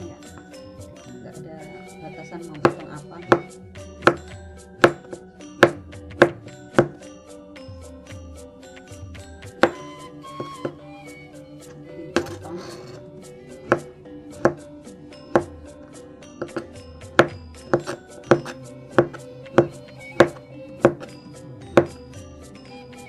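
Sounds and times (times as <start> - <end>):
knife chopping on plastic board: 2.6 - 7.0, 9.6 - 9.8, 13.6 - 14.7, 15.3 - 15.6, 16.4 - 22.0.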